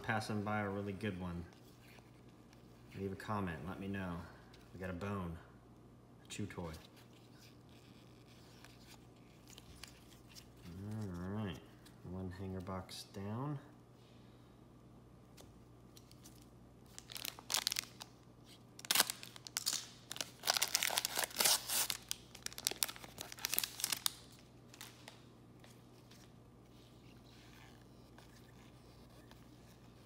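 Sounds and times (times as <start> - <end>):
foil wrapper crinkling: 16.0 - 25.2.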